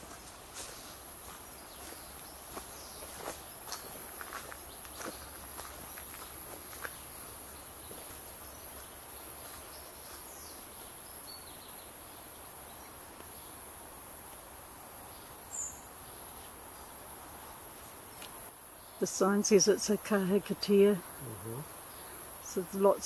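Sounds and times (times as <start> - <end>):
soft footsteps: 0.0 - 10.2
insects trilling: 0.2 - 23.0.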